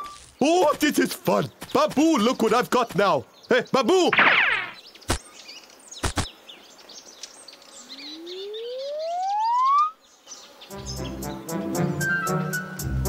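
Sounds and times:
faint bird chirps: 1.4s - 10.8s
cartoon sharp hits: 4.0s - 5.2s
rising whistle-like tone: 8.1s - 10.0s
music: 10.7s - 13.0s.

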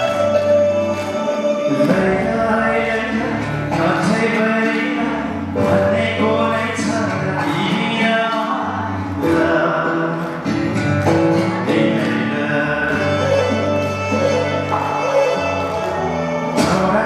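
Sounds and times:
instrumental accompaniment: 0.0s - 17.0s
man singing into a microphone: 0.0s - 17.0s.

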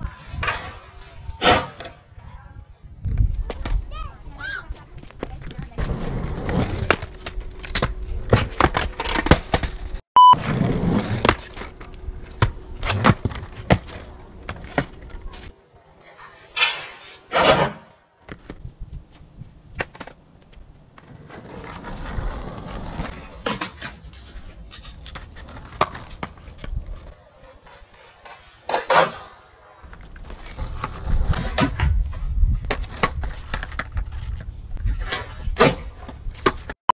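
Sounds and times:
skateboard wheels rumbling on asphalt: 4.8s - 15.6s, 18.3s - 29.0s, 29.8s - 36.7s
skateboard clacking on ground: 10.6s - 18.6s, 19.8s - 32.0s.

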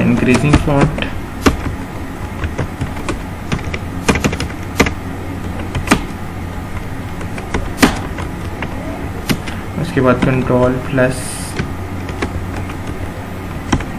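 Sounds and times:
keyboard typing clicks: 0.0s - 10.4s, 11.6s - 13.9s
steady low hum: 0.0s - 13.9s.

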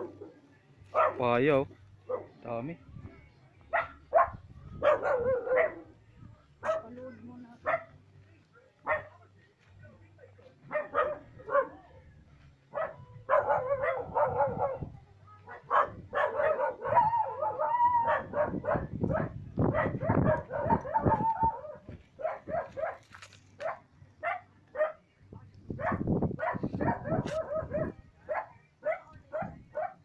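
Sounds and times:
dog barking and yipping: 0.9s - 1.2s, 3.7s - 5.9s, 6.6s - 6.9s, 10.7s - 11.8s, 12.7s - 14.9s, 15.5s - 25.0s, 25.8s - 30.0s.

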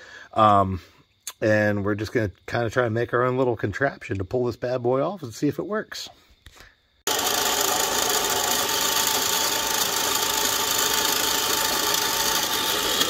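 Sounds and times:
drill press drilling into steel: 7.1s - 13.0s.

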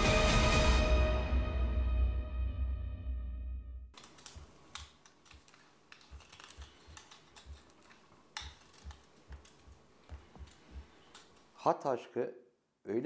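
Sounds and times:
theme music: 0.0s - 3.8s
knife shaving reed pen: 4.0s - 11.6s.

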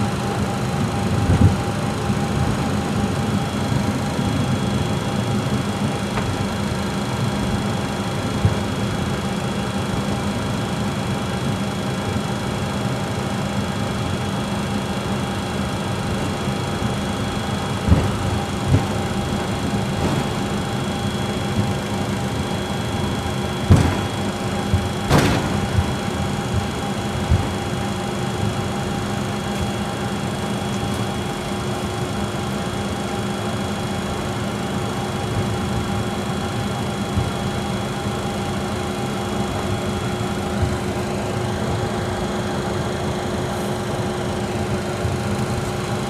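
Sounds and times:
jet engines whining: 0.0s - 46.0s
low thumps: 17.8s - 21.8s, 23.6s - 26.7s.

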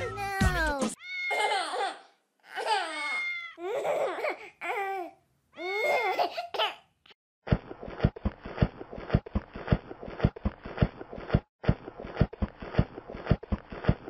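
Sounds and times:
baby crying: 1.0s - 6.8s
footstep sound effects: 7.5s - 14.0s.

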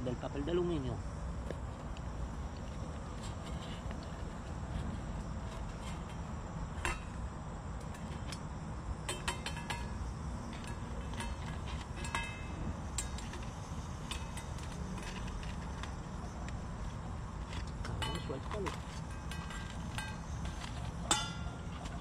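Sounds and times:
metal cooking gear clinking: 9.0s - 16.6s, 17.4s - 22.0s.

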